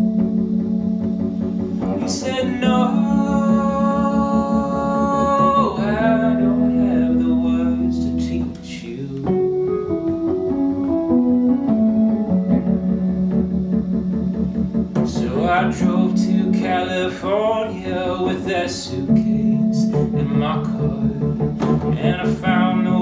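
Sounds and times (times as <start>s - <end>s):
electric piano chords and melody: 0.0s - 23.0s
man singing: 1.8s - 9.6s, 15.0s - 23.0s.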